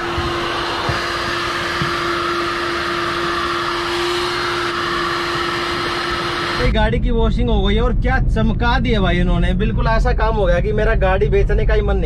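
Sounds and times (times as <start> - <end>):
vacuum cleaner running: 0.0 - 6.7.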